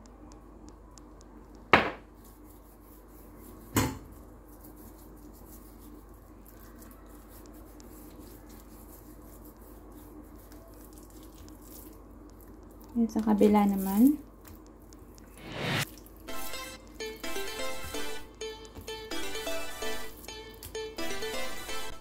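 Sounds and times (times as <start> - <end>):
low steady background hum: 0.0 - 22.0
knocks on wooden cutting board: 1.7 - 2.0.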